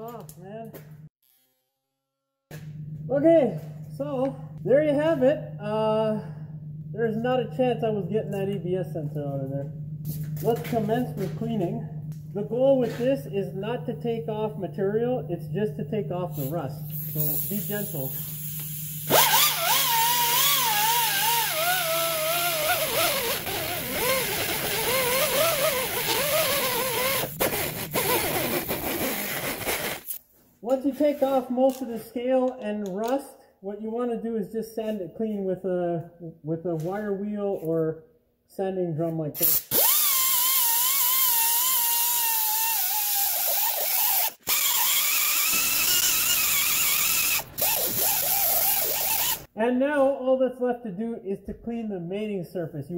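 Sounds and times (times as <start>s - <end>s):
air tool whining on metal: 16.4s - 30.2s, 39.4s - 49.5s.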